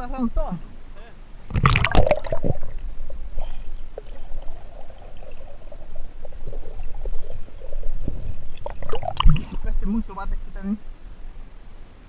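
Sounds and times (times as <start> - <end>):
underwater sloshing and bubbling: 1.4 - 10.0.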